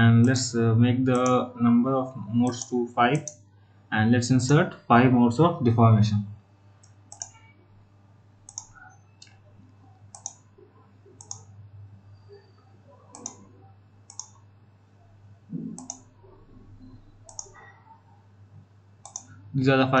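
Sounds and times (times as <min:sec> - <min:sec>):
faint low hum: 0:00.0 - 0:20.0
mouse buttons clicking: 0:06.8 - 0:07.4, 0:08.5 - 0:09.4, 0:10.1 - 0:10.4, 0:11.2 - 0:11.5, 0:13.1 - 0:13.4, 0:14.1 - 0:14.4, 0:15.6 - 0:16.1, 0:17.3 - 0:17.6, 0:19.0 - 0:19.3.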